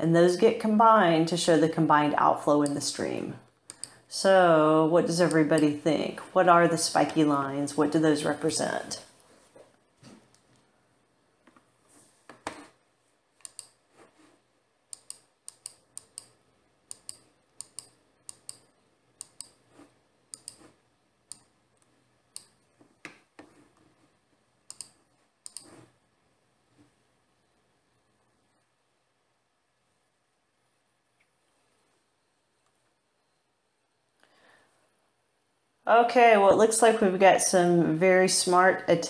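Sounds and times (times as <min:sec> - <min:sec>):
computer keys clicking: 0:03.7 - 0:04.0, 0:13.4 - 0:13.8, 0:14.9 - 0:19.6, 0:20.3 - 0:20.7, 0:24.7 - 0:25.8.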